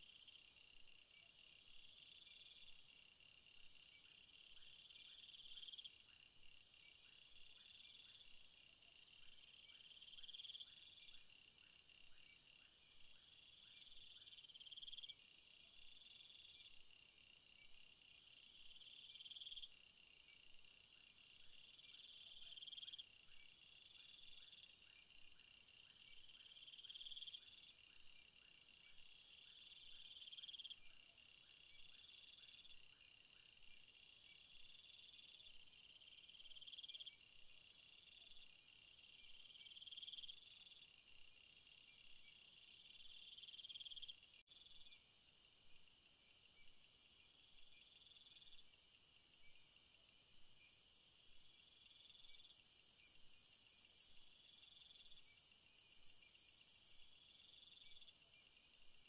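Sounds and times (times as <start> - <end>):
high pulsed insect chirps: 42.5 - 59.0.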